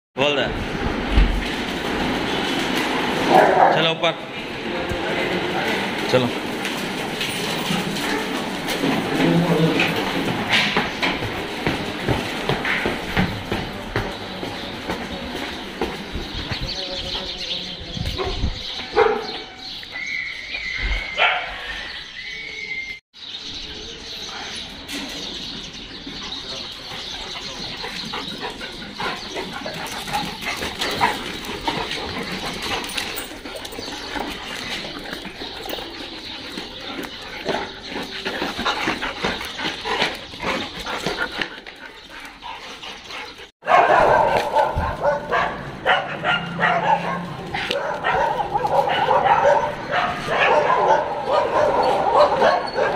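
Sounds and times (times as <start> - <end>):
dogs barking: 2.2 - 4.4, 18.1 - 19.9, 21.1 - 21.9, 27.0 - 52.9.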